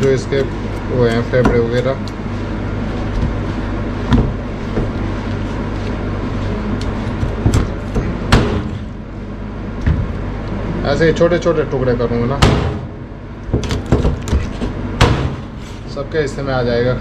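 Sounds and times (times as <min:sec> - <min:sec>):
cleaver chopping on plastic board: 0:00.0 - 0:02.0
low machine hum: 0:00.0 - 0:17.0.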